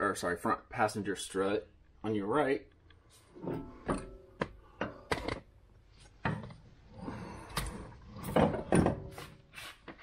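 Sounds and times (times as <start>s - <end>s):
metal knocks and clunks: 3.4s - 5.5s, 7.6s - 9.2s.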